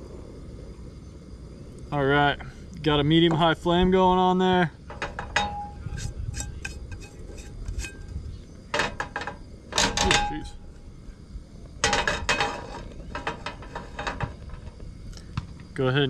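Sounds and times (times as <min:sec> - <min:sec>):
frying pan clanking on metal: 0:04.8 - 0:08.1, 0:08.7 - 0:10.6, 0:11.8 - 0:14.7.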